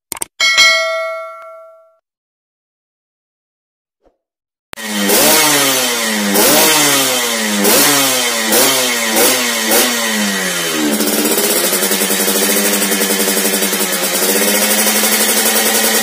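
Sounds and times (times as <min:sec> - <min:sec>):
two-stroke engine revving: 0:04.8 - 0:16.0.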